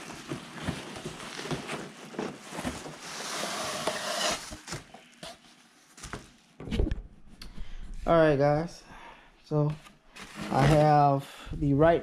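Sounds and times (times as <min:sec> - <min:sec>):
bubble wrap rustling: 0:00.0 - 0:03.6.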